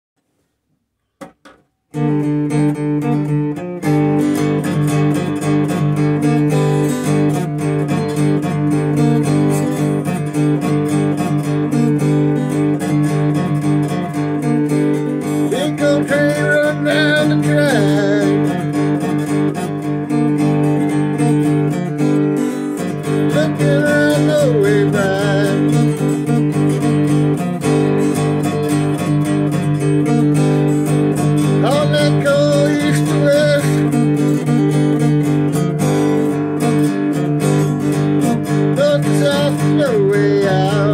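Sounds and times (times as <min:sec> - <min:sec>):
acoustic guitar strumming: 0:01.0 - 0:40.9
harmonica melody: 0:15.0 - 0:36.1.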